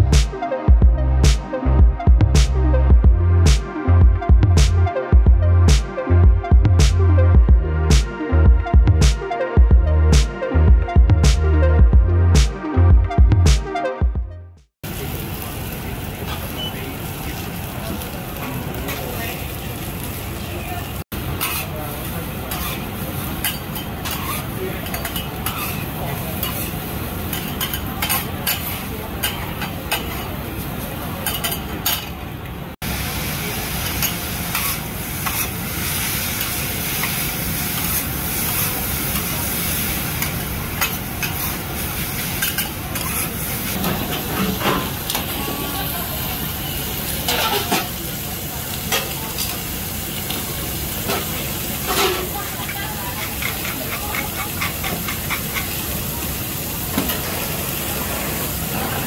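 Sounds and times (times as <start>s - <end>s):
food sizzling on griddle: 14.8s - 31.6s, 32.8s - 59.0s
metal spatula scraping hot plate: 21.4s - 21.7s, 22.5s - 22.8s, 23.4s - 30.3s, 34.0s - 35.6s, 42.3s - 45.2s, 47.3s - 47.9s.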